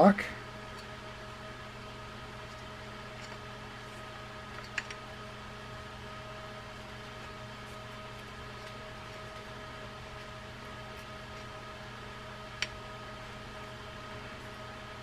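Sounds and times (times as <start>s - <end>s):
room hum: 0.0s - 15.0s.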